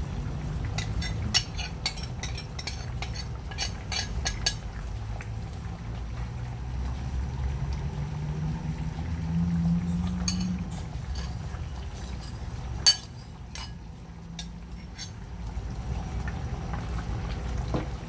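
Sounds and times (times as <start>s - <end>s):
liquid pouring into pot: 0.4s - 7.9s, 8.8s - 18.0s
sharp splashes and clinks: 0.6s - 4.8s, 9.9s - 15.4s
metal ladle stirring: 0.7s - 4.6s, 10.2s - 13.8s, 14.4s - 15.2s.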